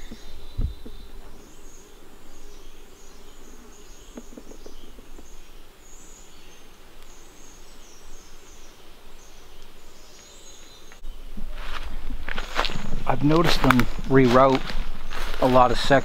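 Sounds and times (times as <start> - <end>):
soft crackles: 6.2 - 16.0.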